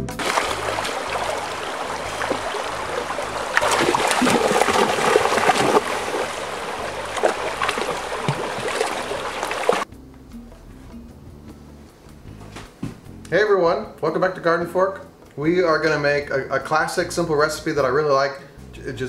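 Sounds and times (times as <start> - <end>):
dogs splashing through water: 0.0 - 9.9
stream rushing over stones: 0.0 - 9.9.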